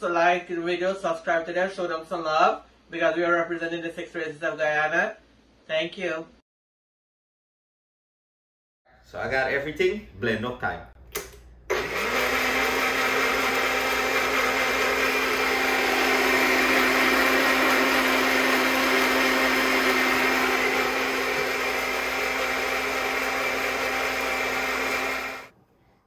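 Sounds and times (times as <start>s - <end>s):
blender running: 11.7s - 25.5s.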